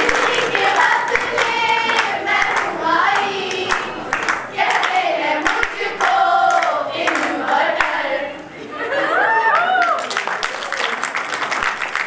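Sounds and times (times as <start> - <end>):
young women singing together: 0.0 - 8.6
hand claps: 3.5 - 8.0, 9.8 - 12.0.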